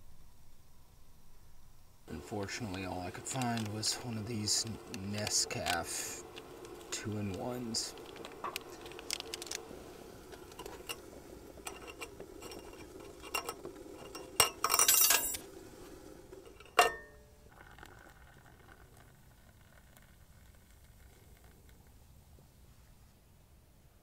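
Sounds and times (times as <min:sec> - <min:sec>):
low steady rush of burner: 0:00.0 - 0:24.0
metal cookware clinking and scraping: 0:16.5 - 0:17.1.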